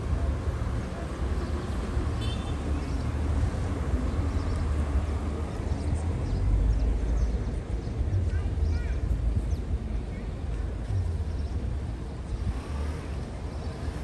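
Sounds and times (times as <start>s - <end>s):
low rumble of road traffic: 0.0s - 14.0s.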